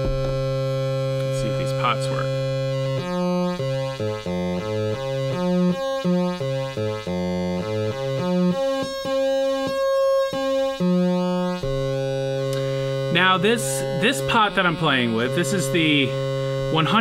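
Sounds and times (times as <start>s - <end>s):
low synth note jumping pitch: 0.0s - 4.0s, 11.0s - 17.0s
steady high synth tone: 8.5s - 17.0s.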